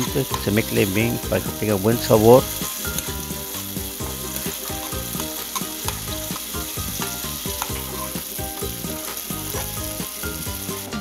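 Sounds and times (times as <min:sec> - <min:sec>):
food sizzling in a pan: 0:00.0 - 0:11.0
spoon scraping a pan: 0:02.4 - 0:10.0.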